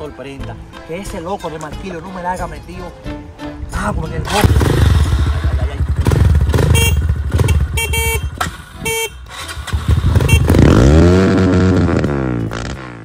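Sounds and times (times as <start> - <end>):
dirt bike engine revving: 4.3 - 13.0
horn toots: 6.0 - 13.0.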